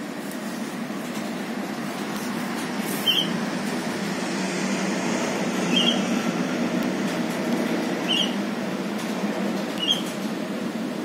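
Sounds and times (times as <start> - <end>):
bird squeaky chirps: 8.1 - 8.4, 9.8 - 10.0.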